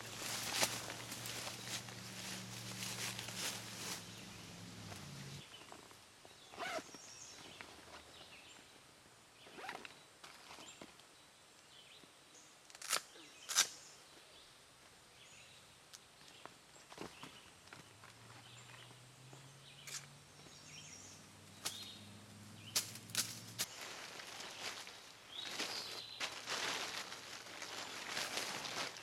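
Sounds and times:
rustles and scrapes of gear: 0.0s - 5.8s
zipper rasps: 6.5s - 6.9s.

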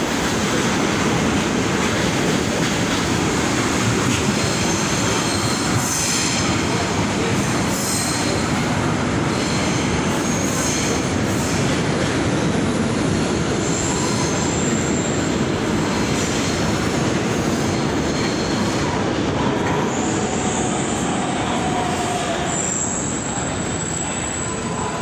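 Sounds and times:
train rumbling: 0.0s - 25.0s
high wheel squeals: 13.6s - 15.4s, 21.7s - 25.0s.

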